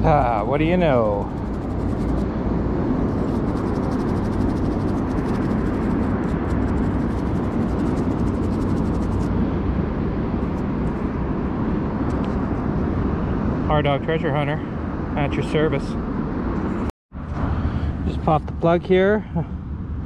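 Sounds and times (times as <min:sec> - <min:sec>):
steady low rumble: 0:00.0 - 0:20.0
toothbrush scrubbing metal: 0:00.8 - 0:02.2, 0:03.1 - 0:09.3.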